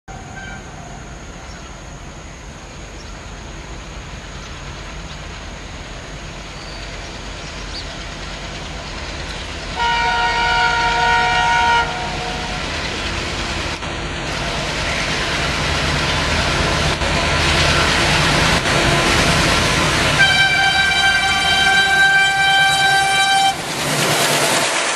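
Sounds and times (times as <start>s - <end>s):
locomotive multi-tone horn: 0.1s - 1.0s, 9.8s - 12.7s, 18.6s - 24.8s
diesel locomotive engines chugging: 0.1s - 24.9s.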